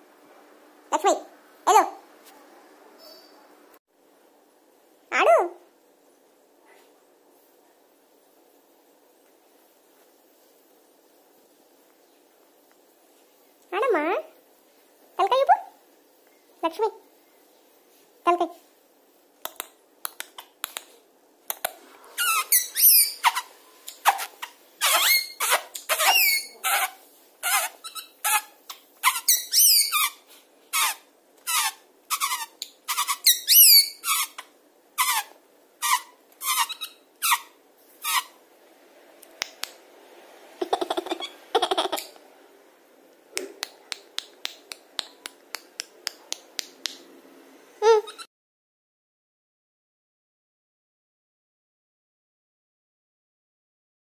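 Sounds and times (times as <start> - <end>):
parakeet squeaking: 22.2 - 38.4, 40.6 - 42.0, 47.8 - 48.3.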